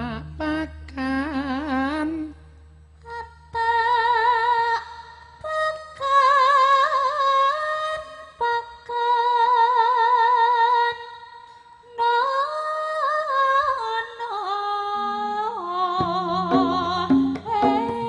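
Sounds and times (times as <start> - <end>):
woman singing with vibrato: 0.0 - 18.0
low gamelan notes: 16.1 - 18.0.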